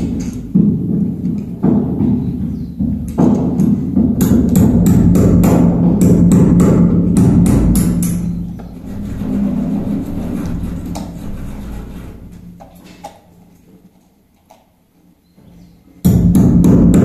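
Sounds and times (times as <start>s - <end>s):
steady low hum: 3.8s - 13.7s.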